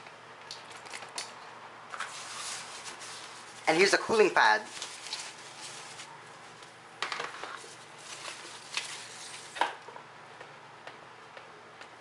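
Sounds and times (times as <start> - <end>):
foam packing sheet rustling: 2.0 - 3.9, 4.6 - 6.1, 7.6 - 9.6.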